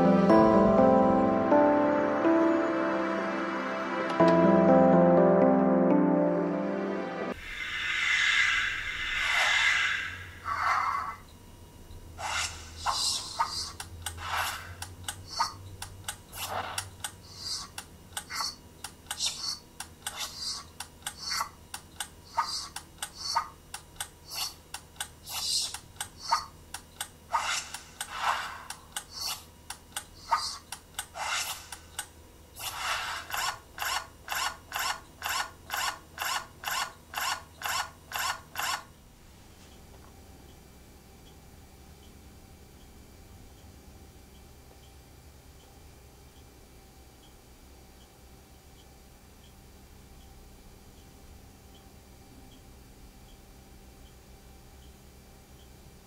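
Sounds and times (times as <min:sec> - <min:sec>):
rasping scraping strokes: 0:32.6 - 0:38.8.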